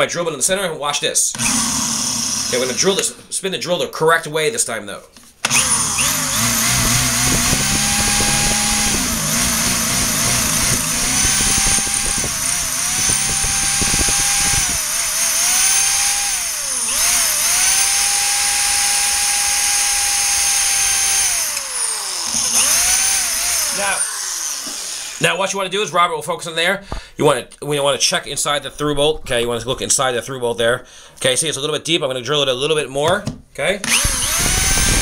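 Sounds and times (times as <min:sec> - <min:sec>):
electric drill boring into steel: 0:01.3 - 0:03.2, 0:05.4 - 0:25.3, 0:33.8 - 0:35.0.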